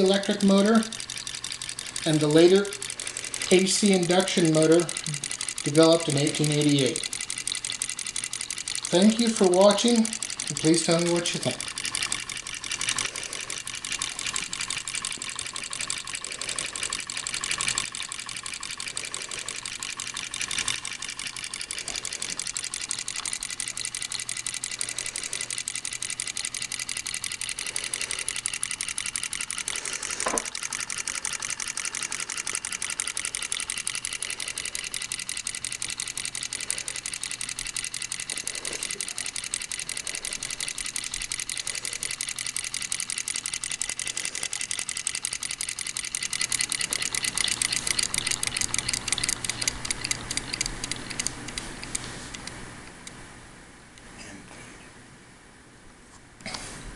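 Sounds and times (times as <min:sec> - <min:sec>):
model engine mechanical clatter: 0:00.0 - 0:52.6.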